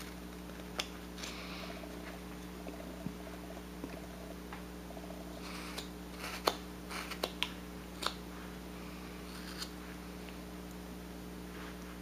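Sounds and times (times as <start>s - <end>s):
steady low hum: 0.0s - 12.0s
knife cutting wood: 5.4s - 8.2s.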